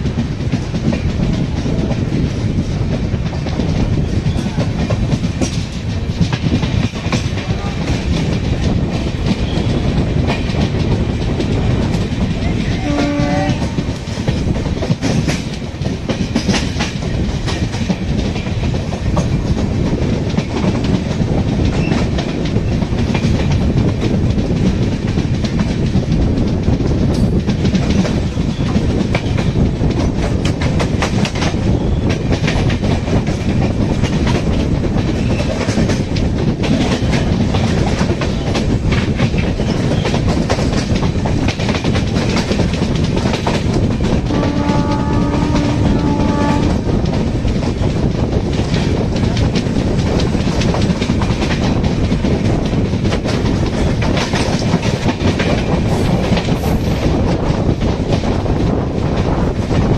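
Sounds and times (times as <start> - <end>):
train wheels rumbling: 0.0 - 59.9
wheels clacking over rail joints: 0.0 - 59.9
train horn blast: 12.6 - 13.8, 44.3 - 46.8.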